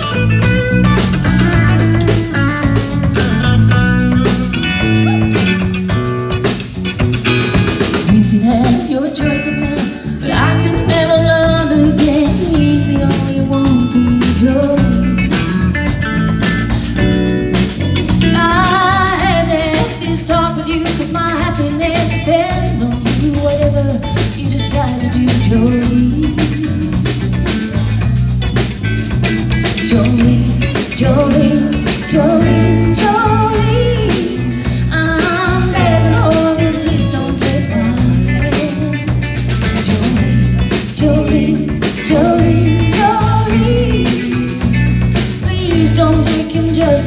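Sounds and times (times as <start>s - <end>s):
drum kit: 0.0s - 47.0s
electric bass guitar: 0.0s - 47.0s
electric guitar: 0.0s - 47.0s
woman singing lead: 7.8s - 15.7s, 18.0s - 27.2s, 29.6s - 47.0s.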